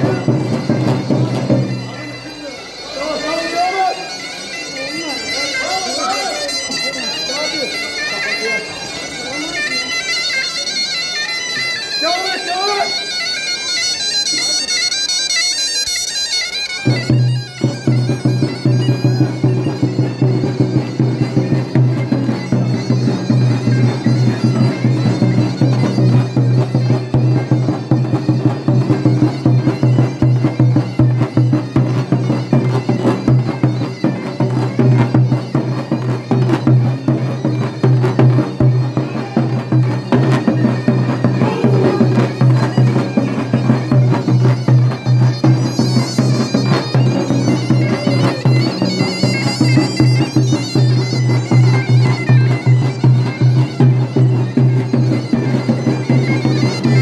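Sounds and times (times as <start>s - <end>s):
davul drum strokes: 0.0s - 2.0s, 16.8s - 57.0s
zurna melody: 0.0s - 57.0s.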